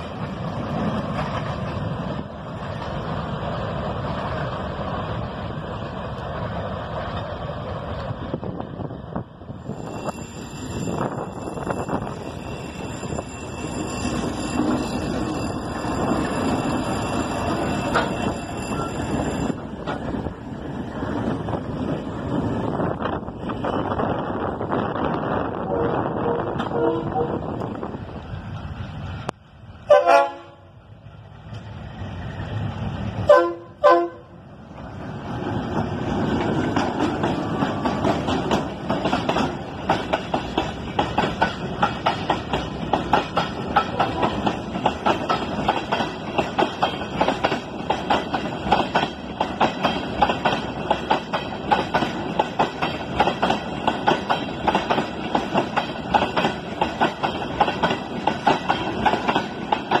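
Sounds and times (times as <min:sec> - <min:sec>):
train wheels clicking over rail joints: 0:09.6 - 0:24.2, 0:34.7 - 1:00.0
locomotive horn blasts: 0:25.7 - 0:27.4, 0:29.9 - 0:30.7, 0:33.3 - 0:34.3.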